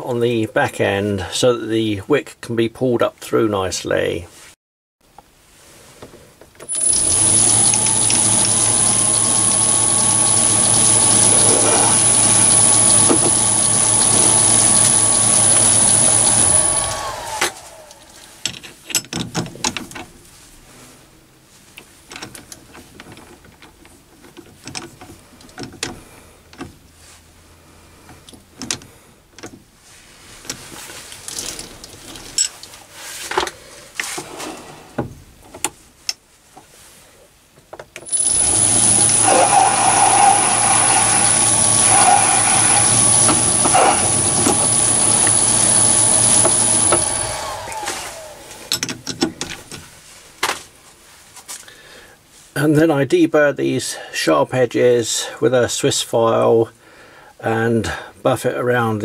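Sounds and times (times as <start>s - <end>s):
lathe motor whining: 6.7s - 18.4s, 38.1s - 48.8s
metal clicks and knocks: 18.4s - 20.2s, 22.1s - 26.8s, 48.7s - 49.9s.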